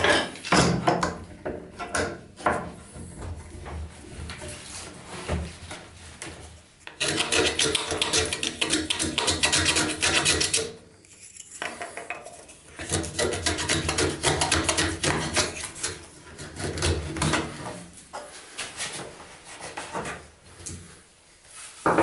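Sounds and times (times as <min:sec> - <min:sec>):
hand tool rasping wood: 0:06.9 - 0:10.8, 0:11.6 - 0:17.6.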